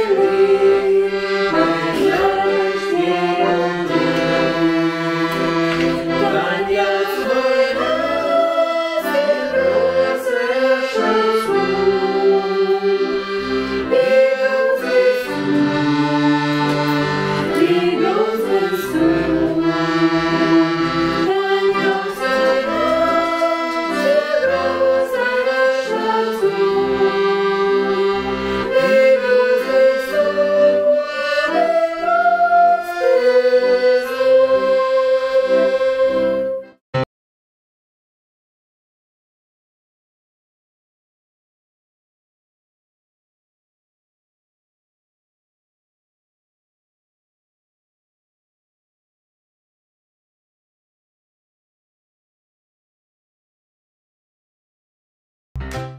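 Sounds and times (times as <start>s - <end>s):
piano accordion playing a tune: 0.0s - 37.1s, 55.6s - 55.9s.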